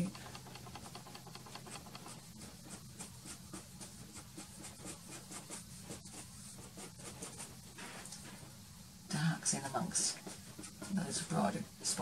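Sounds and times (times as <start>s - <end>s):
pastel stick scratching on board: 0.4s - 7.8s, 10.0s - 11.2s.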